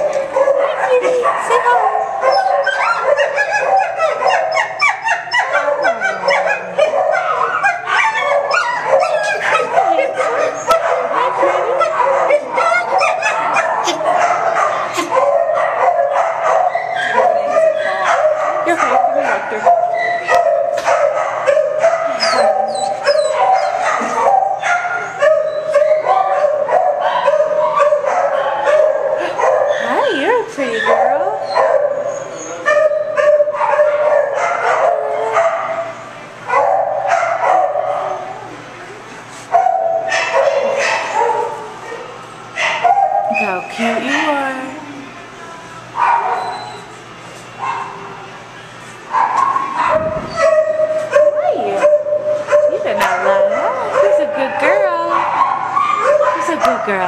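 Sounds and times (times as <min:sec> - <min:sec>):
dogs barking and yelping: 0:00.0 - 0:38.6, 0:39.5 - 0:44.7, 0:45.9 - 0:57.0
dog yips and whines: 0:22.1 - 0:24.1, 0:46.3 - 0:46.9.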